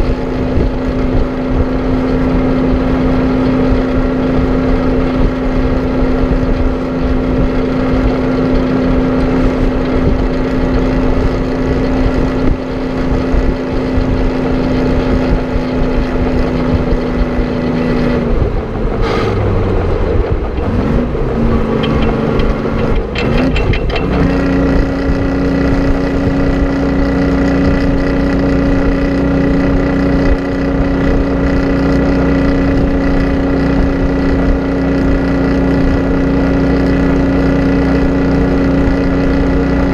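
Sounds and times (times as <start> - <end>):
diesel truck engine running: 0.0 - 39.9.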